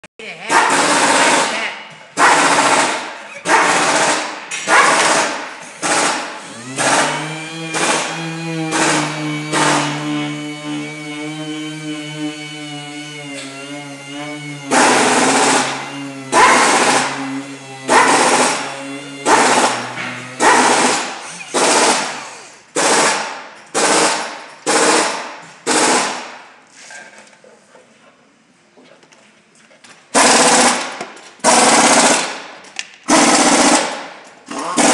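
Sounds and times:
electric polisher motor whine: 6.5s - 20.5s.

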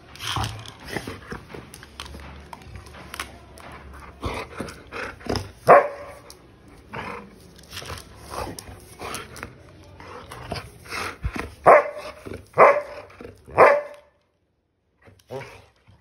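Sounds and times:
dog barking: 5.6s - 6.2s, 11.6s - 14.1s.

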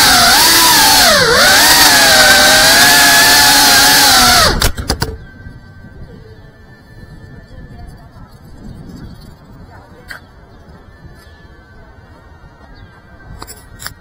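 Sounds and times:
drone motors whining: 0.0s - 7.8s.

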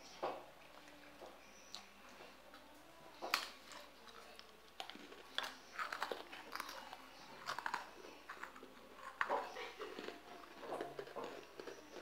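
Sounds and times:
crunching and chewing cracker: 3.2s - 12.0s.

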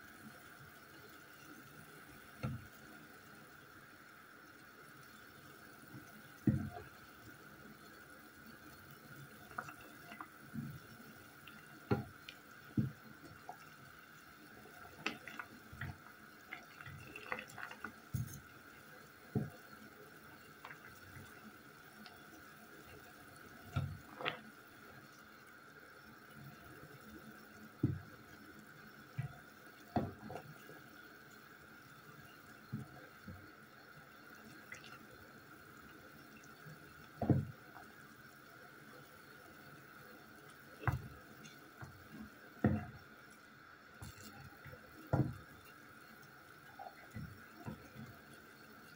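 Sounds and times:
water boiling in a saucepan: 0.0s - 48.9s
wooden spatula stirring: 9.2s - 18.7s, 29.2s - 30.8s, 40.8s - 43.0s, 44.0s - 48.9s
wooden spoon knocking on pan: 11.9s - 12.1s, 12.8s - 13.0s, 42.6s - 43.0s, 45.1s - 45.5s.

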